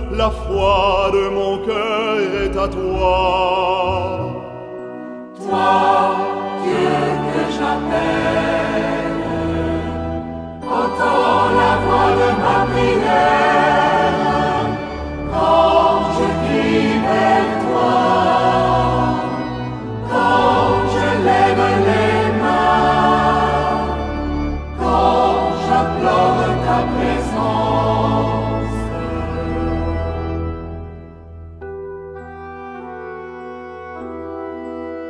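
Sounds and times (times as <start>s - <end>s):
choir singing a hymn: 5.4s - 31.0s.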